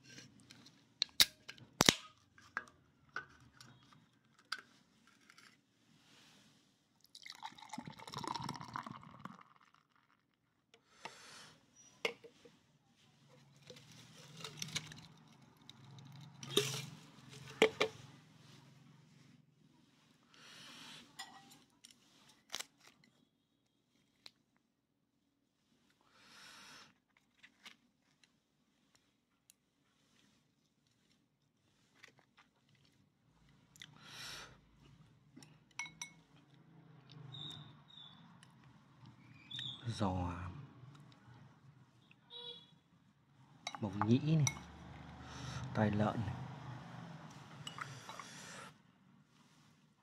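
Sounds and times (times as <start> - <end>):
soft rustle: 3.8 - 7.0, 12.3 - 20.6, 27.1 - 33.7, 49.1 - 50.0.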